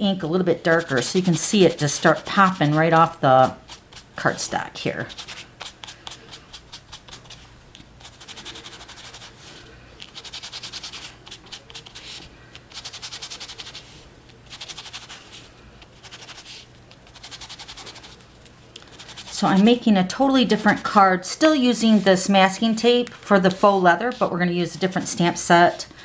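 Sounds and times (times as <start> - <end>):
sponge rubbing on cardstock: 0.6 - 4.1, 5.1 - 18.2, 18.9 - 19.8, 21.7 - 22.3.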